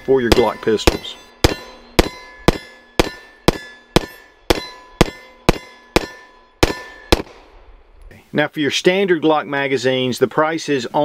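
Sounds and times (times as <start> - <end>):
steel targets ringing: 0.0 - 7.4
pistol shots: 0.3 - 7.6.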